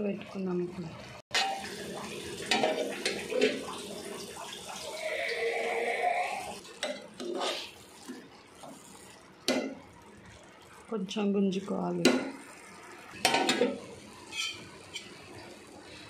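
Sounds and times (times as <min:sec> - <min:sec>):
metal spoon scraping pot: 0:06.8 - 0:07.8, 0:13.3 - 0:15.2.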